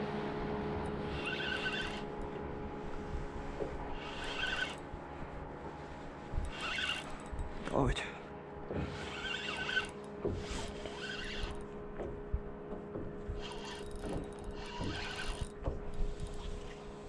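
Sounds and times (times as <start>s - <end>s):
steady low hum: 0.0s - 17.0s
fishing reel cranking: 0.8s - 2.3s, 4.0s - 4.8s, 6.4s - 7.4s, 9.0s - 11.7s, 13.4s - 16.7s.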